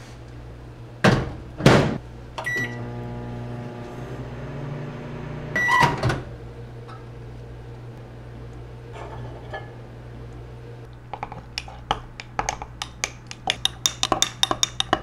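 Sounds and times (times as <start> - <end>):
microwave humming: 0.4 - 11.5
microwave beep: 2.4 - 3.0, 5.2 - 6.0.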